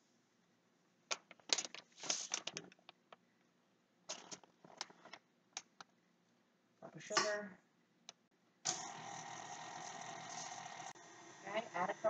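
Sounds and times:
paper bag rustling: 1.7 - 2.8.

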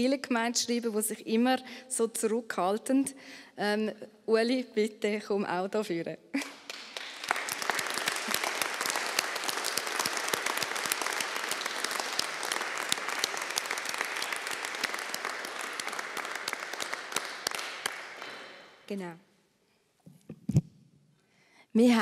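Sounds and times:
congregation applauding: 6.4 - 18.8.

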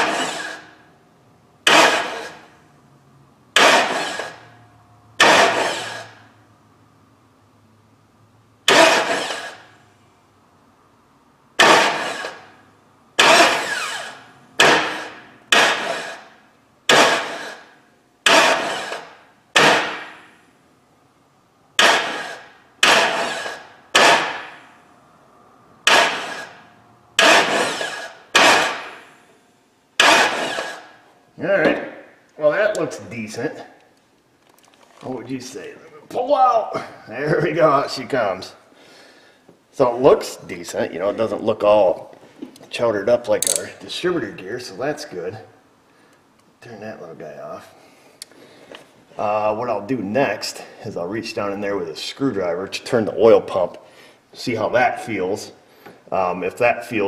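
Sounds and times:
starter motor cranking engine: 0.0 - 0.7, 1.6 - 2.5, 3.6 - 4.5, 5.2 - 6.2, 8.7 - 9.7, 11.6 - 12.5, 13.2 - 16.3, 16.9 - 20.0, 21.8 - 24.4, 25.8 - 26.6, 27.2 - 29.0, 30.0 - 30.9.

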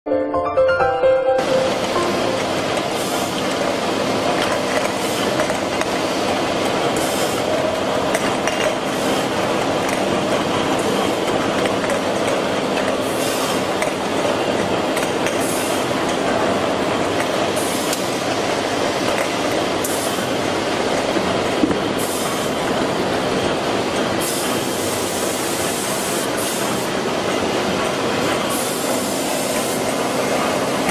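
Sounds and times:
machine mechanical clatter: 2.4 - 24.8.

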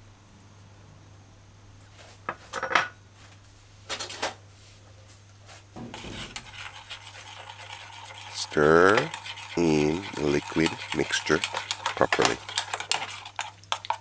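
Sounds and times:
spoon stirring liquid: 5.8 - 14.0.

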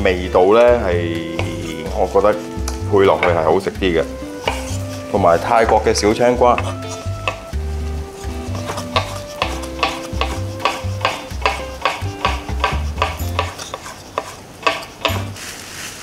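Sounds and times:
light background music: 0.0 - 13.9, 14.6 - 15.4
knife slicing on wooden board: 4.3 - 5.1, 8.2 - 15.4.

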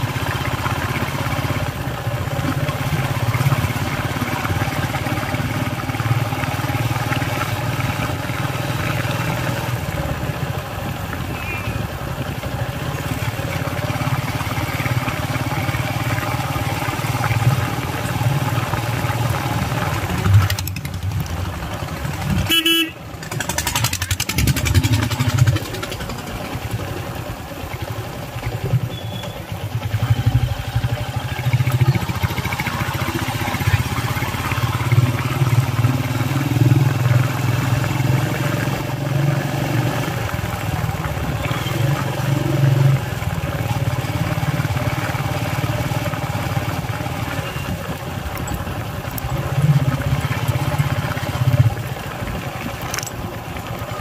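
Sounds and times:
road and wind noise: 0.0 - 54.0
vehicle engine running: 0.0 - 54.0
horn toot: 22.4 - 23.0.

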